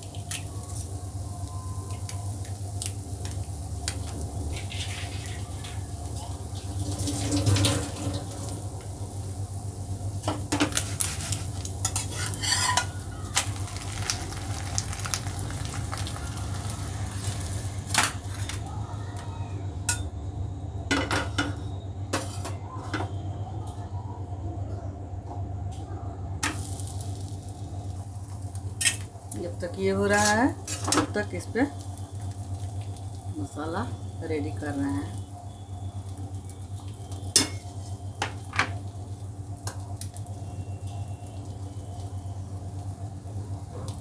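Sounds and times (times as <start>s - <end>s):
egg sizzling in pan: 0.0s - 18.8s, 26.4s - 44.0s
pan and utensils clinking: 10.3s - 13.0s.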